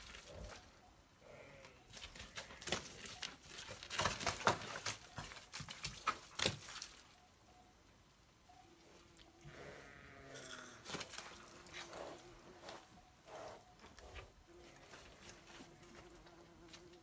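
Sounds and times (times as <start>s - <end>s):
hooves stepping in wet mud: 0.0s - 0.7s, 1.9s - 7.3s, 10.8s - 17.0s.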